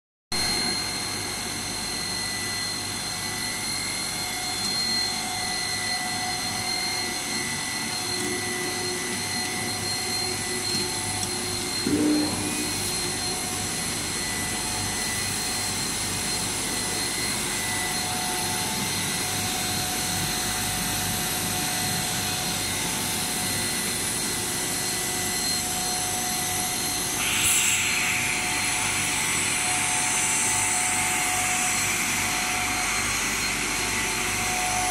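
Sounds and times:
machine hum with whining motors: 0.3 - 34.9
steady hiss: 27.2 - 31.8.

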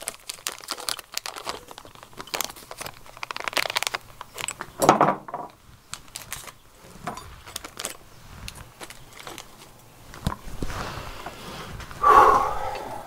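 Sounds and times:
plastic bag crinkling: 0.0 - 4.8, 5.6 - 10.6.

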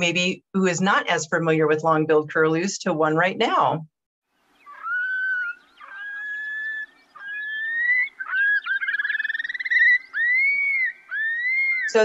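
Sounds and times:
curlews whistled calls: 4.5 - 12.0
fast rippling bird trill: 4.5 - 12.0.

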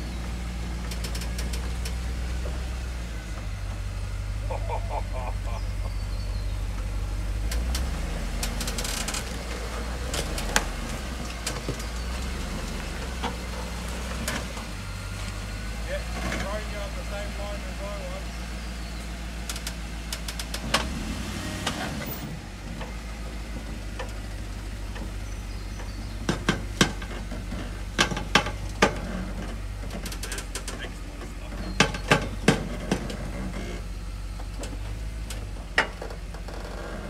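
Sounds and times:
engine idling: 0.0 - 37.0
sharp cracks and knocks: 0.8 - 2.6, 6.8 - 15.4, 19.4 - 20.9, 24.9 - 30.9.

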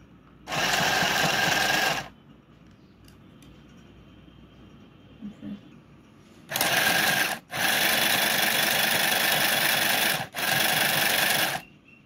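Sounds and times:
sewing machine whirring: 0.5 - 2.2, 6.5 - 11.7.

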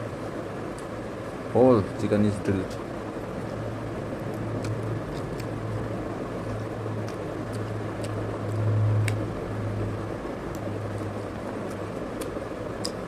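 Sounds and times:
steady low room hum: 0.0 - 13.0
man chewing chicken: 4.2 - 13.0.

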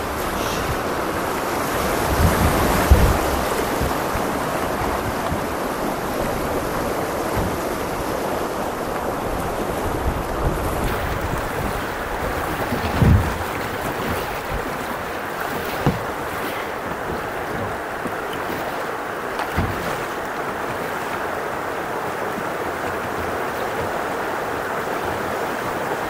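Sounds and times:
water rushing around kayak: 0.0 - 26.0
low thumps: 2.2 - 9.1.

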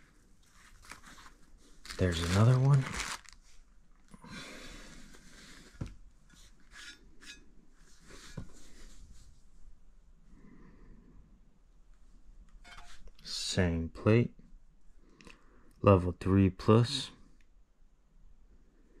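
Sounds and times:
packaging rustling and rubbing: 0.4 - 3.8.

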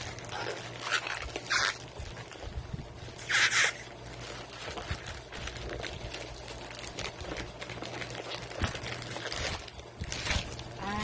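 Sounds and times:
plastic wrapping rustling and tearing: 0.0 - 11.0
steady low hum: 0.0 - 11.0.

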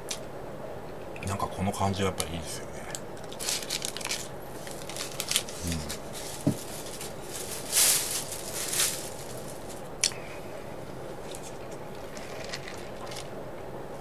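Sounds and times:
background hiss: 0.0 - 14.0
paper wrapper rustling: 3.2 - 9.9.

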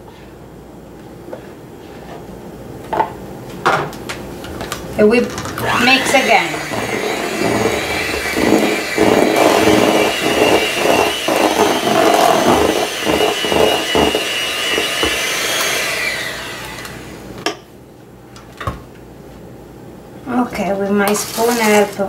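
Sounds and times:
electric hand mixer whining: 5.4 - 17.3.

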